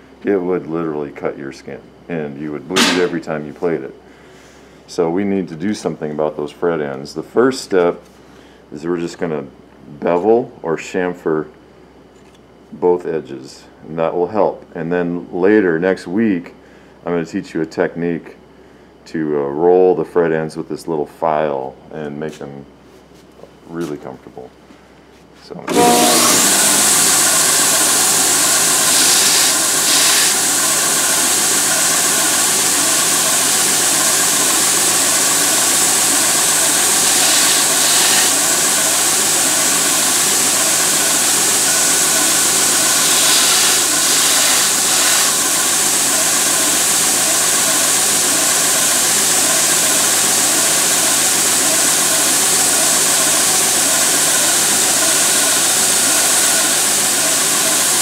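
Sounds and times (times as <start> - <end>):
metal grinding on sander belt: 25.7 - 30.6, 36.8 - 38.6, 42.4 - 45.6
belt sander running: 25.7 - 58.0.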